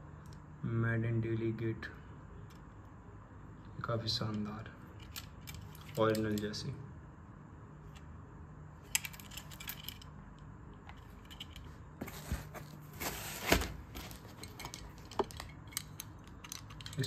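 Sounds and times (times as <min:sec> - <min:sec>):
rustling: 0:11.0 - 0:15.4.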